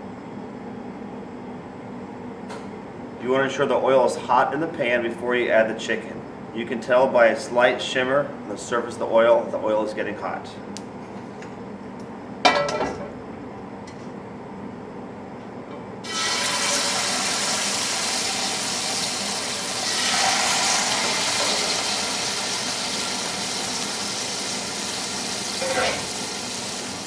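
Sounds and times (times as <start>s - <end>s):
chicken sizzling in oil: 16.0s - 27.0s.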